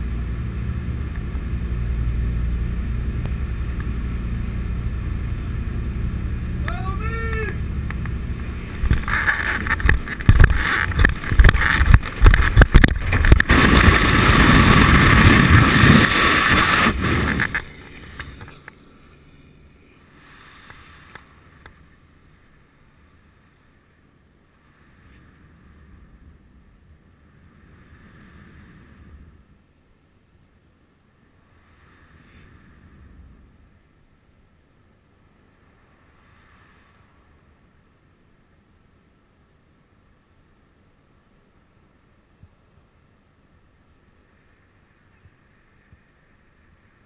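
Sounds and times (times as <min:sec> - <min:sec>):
aircraft engine and slipstream: 0:00.0 - 0:41.0
wind buffeting microphone: 0:07.4 - 0:18.4.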